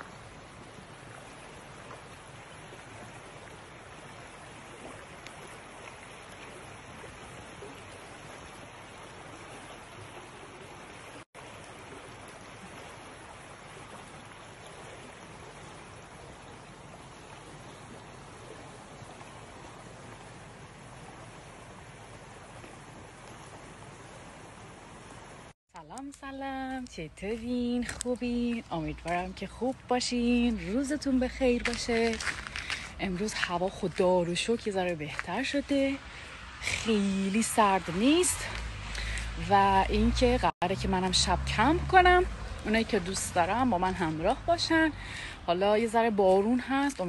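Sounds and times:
river water rushing: 0.0s - 25.6s, 28.8s - 45.5s.

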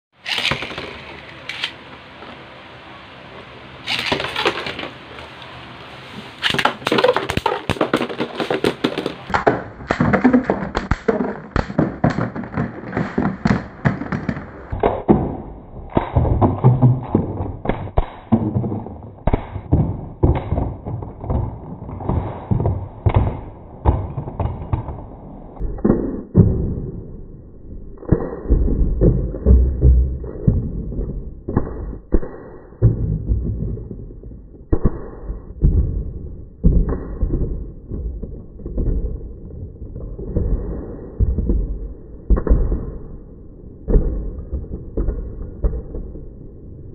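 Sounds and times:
spinning tops clattering: 0.2s - 1.8s, 3.9s - 5.0s.

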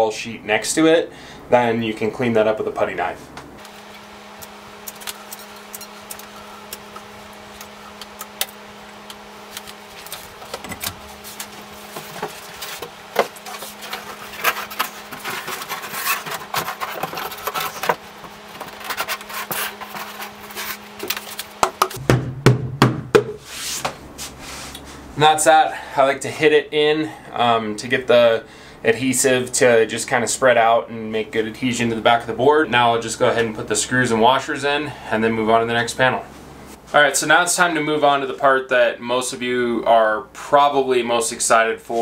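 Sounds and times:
steady low hum: 0.0s - 42.0s
wall panel rubbing and scraping: 9.4s - 22.0s, 23.4s - 25.0s
hand slapping board: 21.6s - 24.0s.

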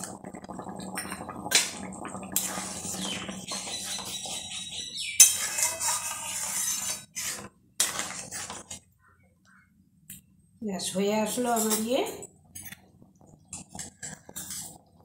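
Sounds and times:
spatula scraping metal pan: 2.4s - 8.9s, 13.5s - 15.0s.

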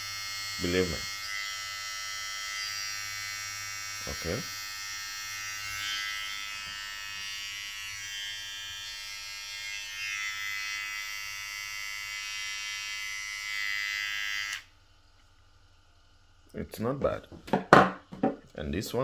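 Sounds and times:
hair trimmer running: 0.0s - 14.8s.

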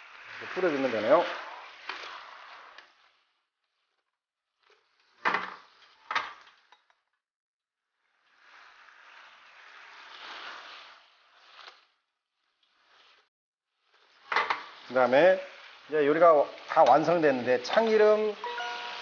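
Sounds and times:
sauce sizzling in a frying pan: 14.6s - 19.0s.

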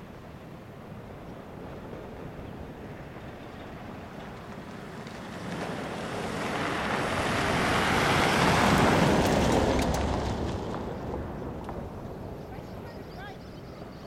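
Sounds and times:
vehicle driving past on gravel: 1.7s - 12.8s.

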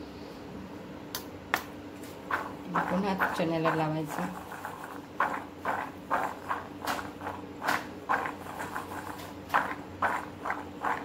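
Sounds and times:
chickpeas rattling in steel bowl: 2.2s - 11.0s.

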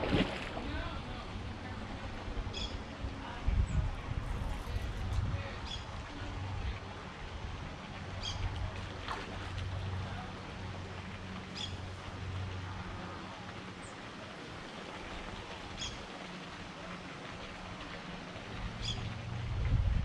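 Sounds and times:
steady low rumble: 18.4s - 20.0s.

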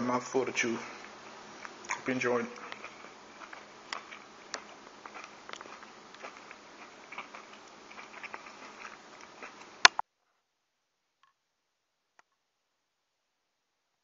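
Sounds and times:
person chewing: 0.7s - 10.0s.

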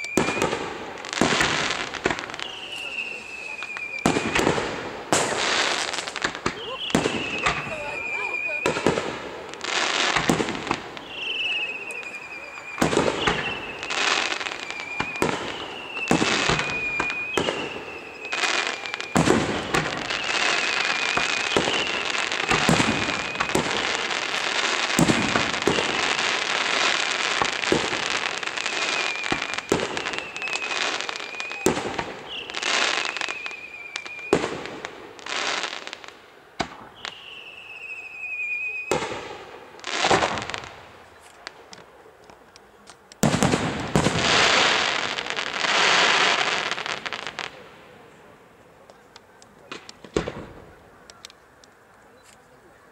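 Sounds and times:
fireworks whistles falling in pitch: 0.0s - 41.3s
fireworks bangs: 0.0s - 51.6s
fireworks crackling: 0.0s - 52.9s.

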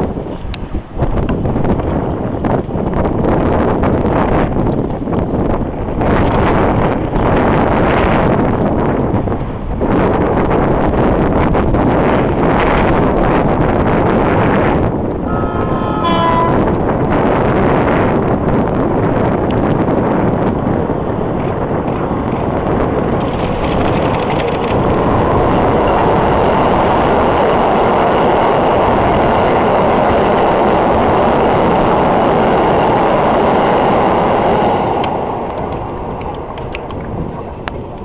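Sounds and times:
train wheels rumbling on rails: 0.0s - 38.0s
fast clicking: 23.1s - 25.0s.

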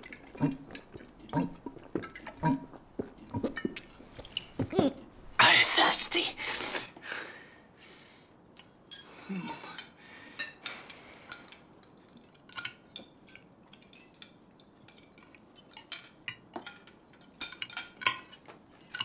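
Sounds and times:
cutlery clinking on plates: 8.6s - 19.0s.

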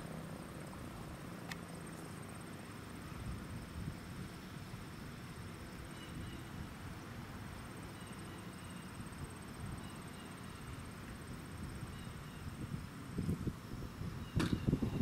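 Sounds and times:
faint chirps: 5.8s - 6.6s, 7.8s - 10.9s.

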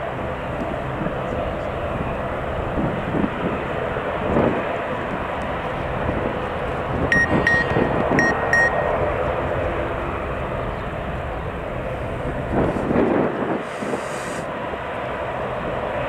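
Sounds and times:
jet engine running: 0.0s - 16.0s
short high beeps: 7.1s - 9.0s.

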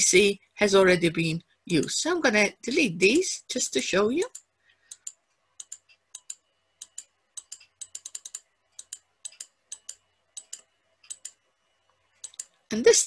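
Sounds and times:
mouse and keyboard clicks: 4.3s - 11.4s, 12.2s - 12.6s.

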